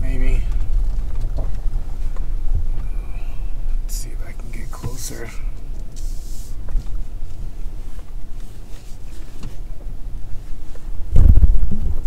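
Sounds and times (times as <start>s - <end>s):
car cabin rumble: 0.0s - 12.0s
loud low thump: 11.1s - 11.7s.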